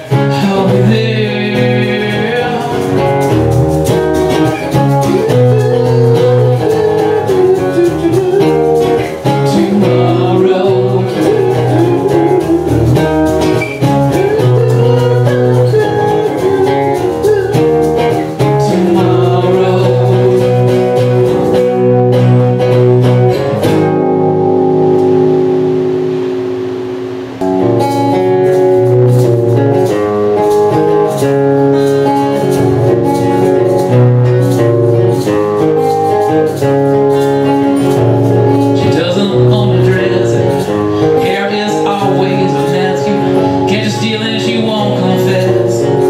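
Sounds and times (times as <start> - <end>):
man singing: 0.0 - 21.7, 38.5 - 46.0
acoustic guitars strumming: 0.0 - 46.0.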